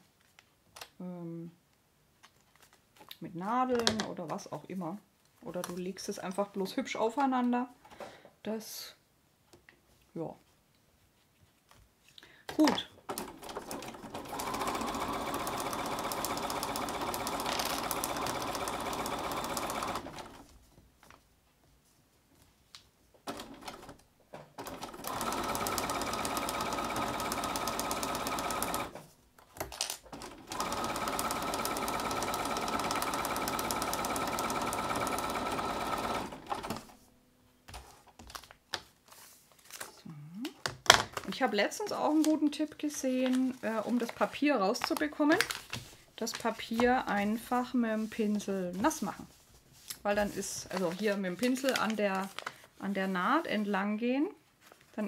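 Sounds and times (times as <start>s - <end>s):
electric sewing machine stitching: 13.1s - 20.4s, 24.6s - 29.0s, 30.1s - 36.9s.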